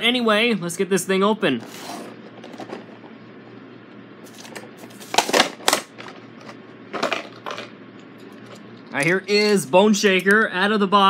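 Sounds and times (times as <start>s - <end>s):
plastic packaging being torn open: 4.3s - 6.0s.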